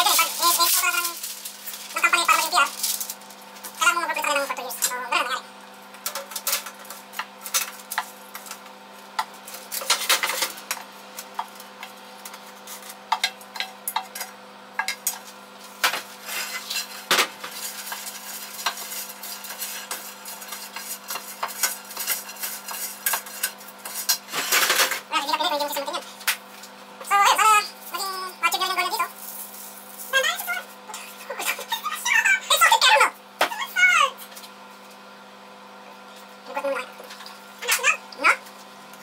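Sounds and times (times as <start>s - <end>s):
wooden spoon scraping saucepan: 16.2s - 24.5s.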